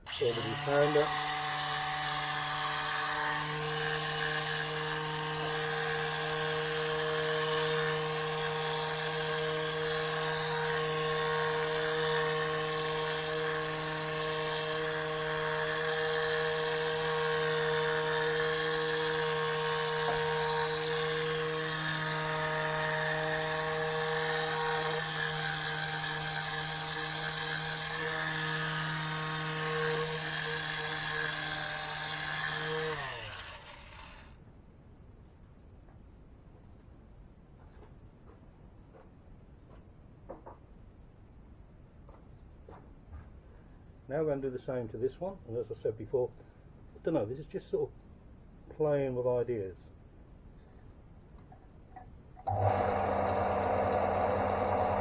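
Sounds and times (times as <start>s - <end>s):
sander pad rasping on wood: 0.0s - 34.2s
electric sander running: 0.0s - 34.3s, 52.5s - 55.0s.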